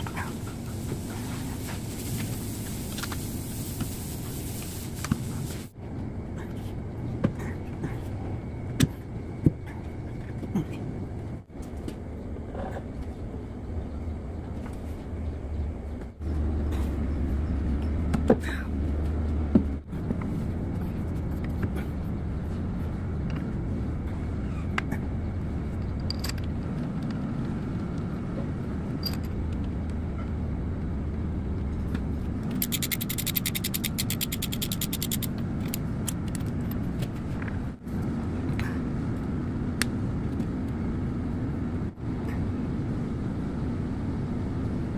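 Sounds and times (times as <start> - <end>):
low rumble of workshop machinery: 0.0 - 44.9
ratchet wrench clicks: 32.6 - 35.8.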